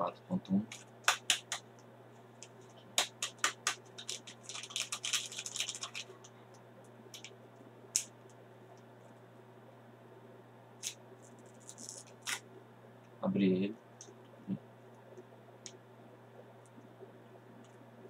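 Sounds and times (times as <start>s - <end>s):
faint steady hum: 0.0s - 18.0s
sharp clicks and taps: 0.7s - 1.6s, 2.4s - 4.3s
sachet crinkling: 2.4s - 6.3s, 10.8s - 12.4s.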